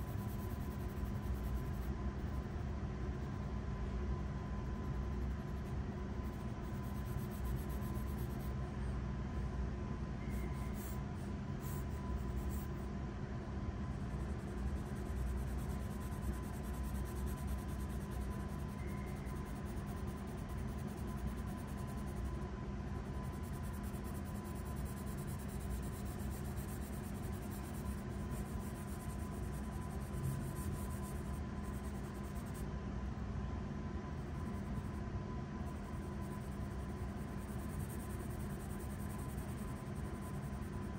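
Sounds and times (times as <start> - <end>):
steady low hum: 0.0 - 40.9
pencil scratching on paper: 4.9 - 8.6, 10.3 - 12.7, 14.0 - 22.4, 23.1 - 32.6, 35.7 - 40.9.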